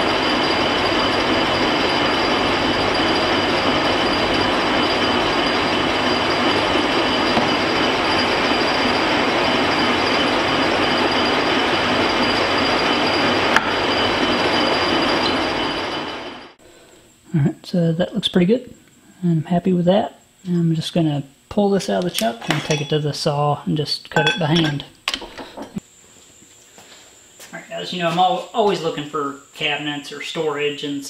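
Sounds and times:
lathe whining and hissing: 0:00.0 - 0:17.2.

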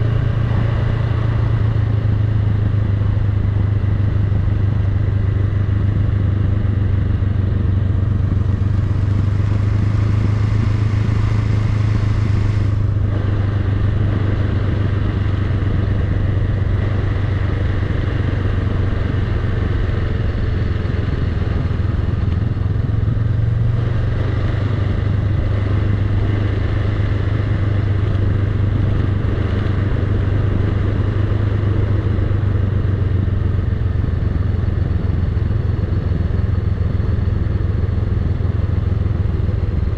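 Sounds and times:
motorcycle engine running: 0:00.0 - 0:39.9.

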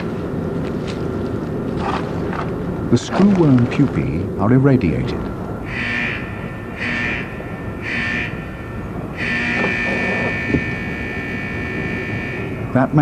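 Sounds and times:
electronic tone pulsing: 0:06.5 - 0:12.6.

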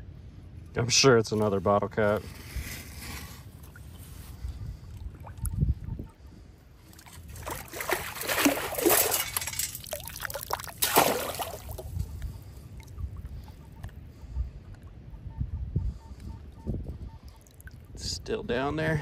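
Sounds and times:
water draining through metal scoop: 0:07.3 - 0:11.8
sharp water splash: 0:07.3 - 0:11.9.

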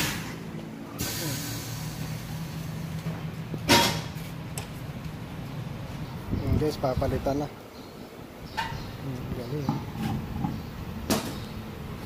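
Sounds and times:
sharp compressed air blast: 0:00.0 - 0:00.4, 0:01.0 - 0:02.7
air hiss: 0:00.9 - 0:02.9.

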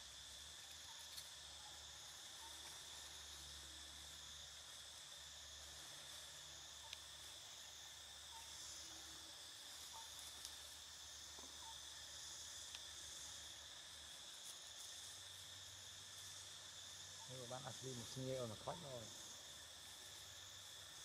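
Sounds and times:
insect chorus: 0:00.0 - 0:21.0
faint ticks: 0:00.5 - 0:01.4, 0:06.7 - 0:07.1, 0:09.7 - 0:11.8, 0:12.6 - 0:13.0.

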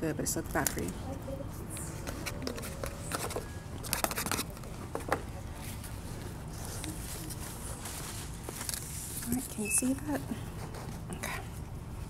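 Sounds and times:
low background hum: 0:00.0 - 0:12.0
food crinkles and clicks: 0:06.7 - 0:09.4.

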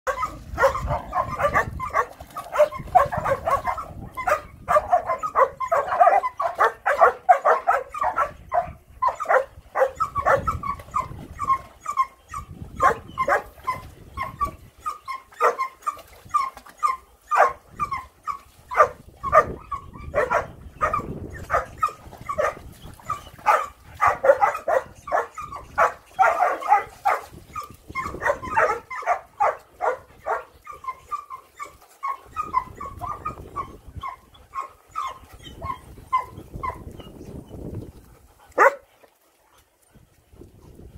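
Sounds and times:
puppies yipping and barking: 0:00.1 - 0:39.1.

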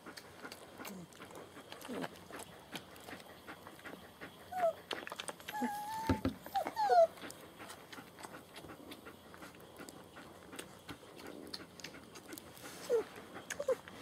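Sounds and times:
puppies whimpering: 0:04.5 - 0:04.8, 0:05.5 - 0:07.3, 0:12.9 - 0:13.8.

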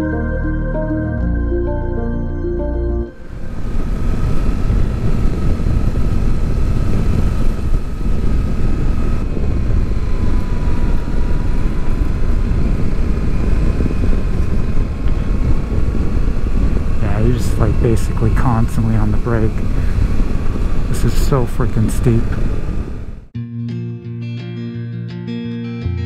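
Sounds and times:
faint steady whine: 0:01.8 - 0:23.3
wind and road rush: 0:03.1 - 0:23.3.

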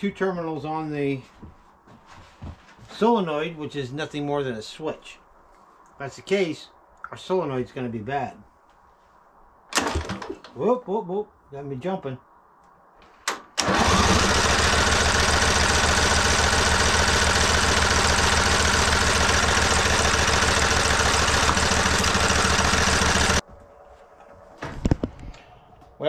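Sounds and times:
engine cranking: 0:13.6 - 0:23.4.

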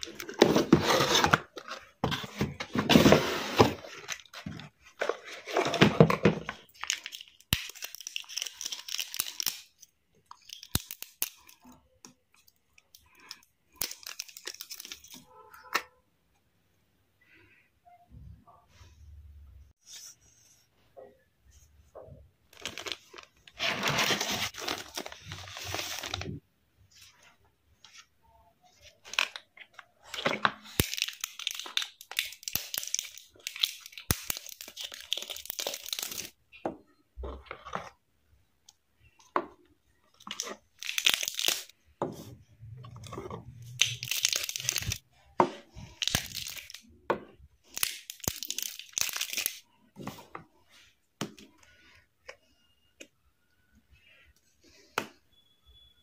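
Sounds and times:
plastic film crinkling and tearing: 0:22.6 - 0:26.4, 0:40.3 - 0:41.8, 0:43.8 - 0:45.0, 0:47.6 - 0:49.6.

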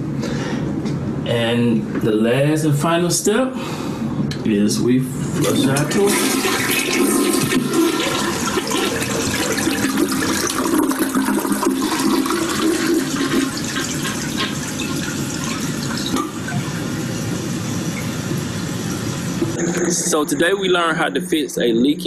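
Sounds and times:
toilet refilling hiss: 0:05.4 - 0:20.3
toilet flushing: 0:05.4 - 0:21.2.

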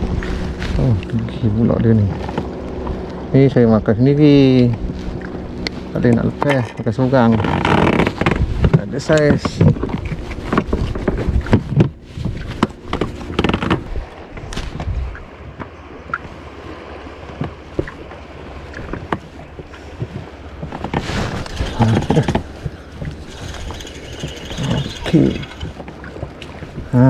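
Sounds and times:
wind and water rushing: 0:00.0 - 0:27.0
gear knocking and rubbing: 0:20.6 - 0:25.9.

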